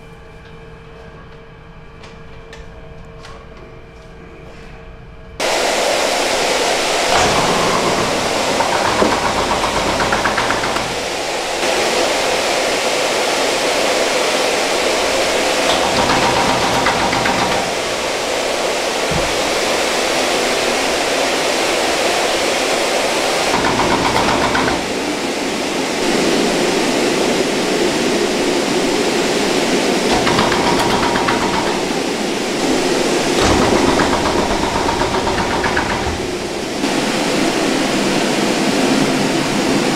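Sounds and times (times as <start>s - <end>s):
stuffing machine rushing noise: 5.4s - 12.5s, 14.5s - 26.2s, 29.1s - 37.2s.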